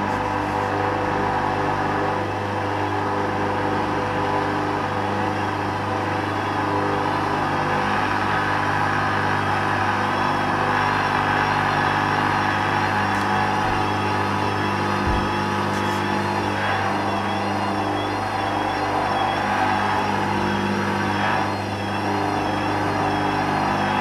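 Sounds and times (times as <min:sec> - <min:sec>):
faint wavering whine: 0:00.0 - 0:24.0
washing machine drum turning: 0:15.0 - 0:15.6.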